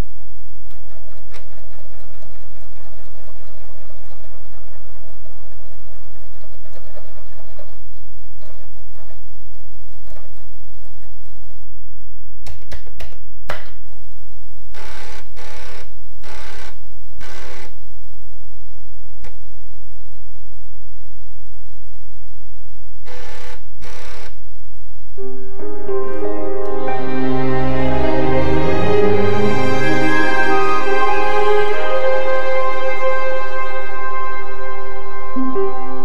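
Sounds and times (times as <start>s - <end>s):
electrical hum and buzz: 14.2s - 25.2s
short bursts of noise: 14.7s - 17.8s, 23.0s - 24.5s.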